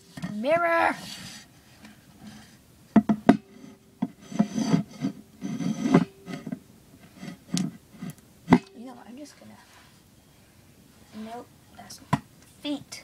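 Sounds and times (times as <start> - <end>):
plastic mirror scraping: 3.3 - 8.2.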